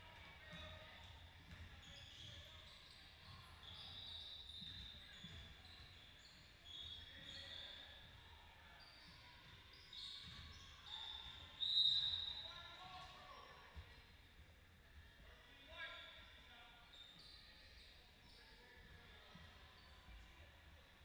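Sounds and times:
sneakers squeaking: 0.4s - 13.9s, 15.9s - 20.2s.

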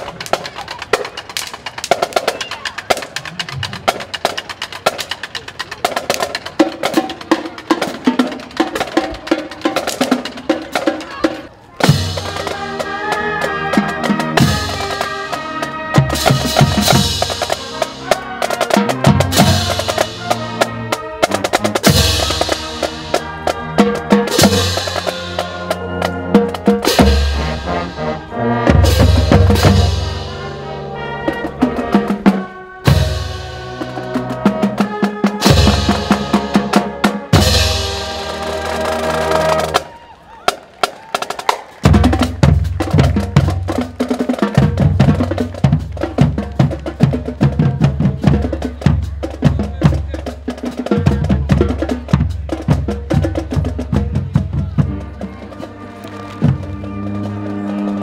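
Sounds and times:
snare drums: 0.0s - 58.0s
brass instruments: 6.1s - 58.0s
bass drums: 16.0s - 18.2s, 18.8s - 30.4s, 41.9s - 55.4s.

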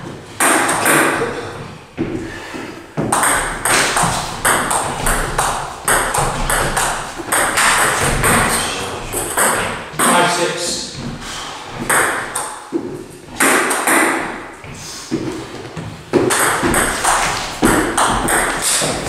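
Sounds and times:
table tennis ball clacking: 3.0s - 10.5s, 11.8s - 14.6s, 16.1s - 19.0s.

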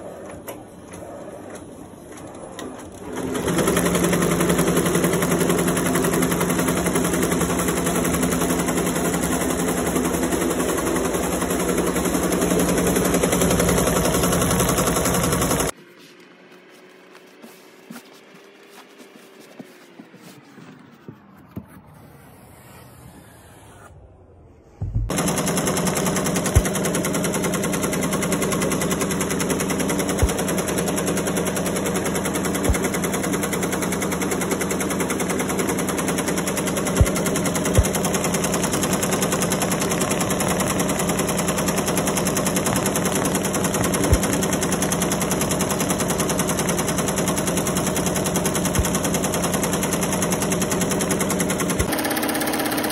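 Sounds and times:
embroidery machine stitching: 0.2s - 15.8s, 25.1s - 52.9s
fabric rustling: 15.8s - 21.2s.

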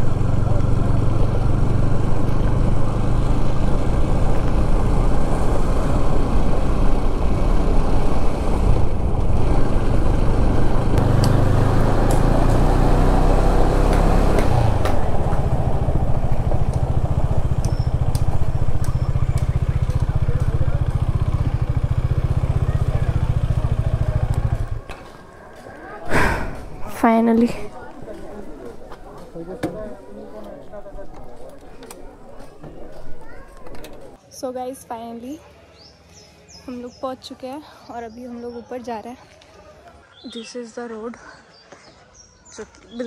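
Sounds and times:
motorcycle engine running: 0.0s - 25.6s
sharp ticks: 17.5s - 20.6s.

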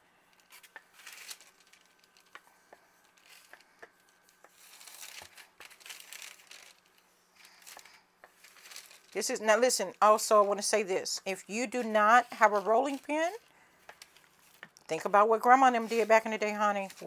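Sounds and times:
faint steady hum: 0.0s - 17.0s
rolling pin swishing on dough: 10.3s - 13.5s, 15.4s - 17.0s.

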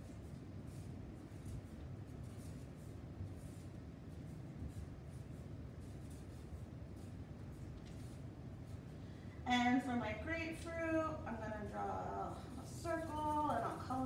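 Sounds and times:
marker scratching on paper: 0.0s - 8.9s
low steady hum: 0.0s - 14.0s.

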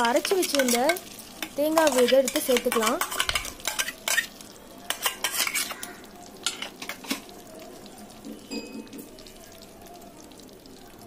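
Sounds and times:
spoon scraping metal pot: 0.0s - 4.3s, 4.9s - 7.3s.

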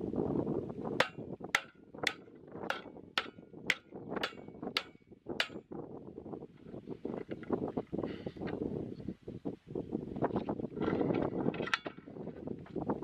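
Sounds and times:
hatchet chopping wood: 1.0s - 5.6s.

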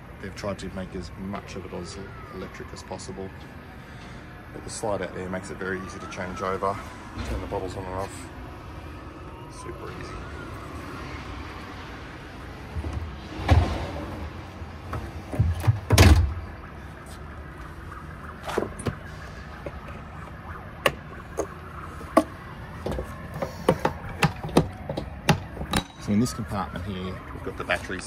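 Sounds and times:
metal compartment door shutting: 14.9s - 16.4s.

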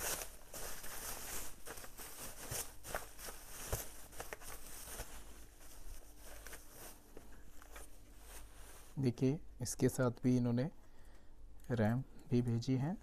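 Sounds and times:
bubble wrap rustling: 0.0s - 9.0s.

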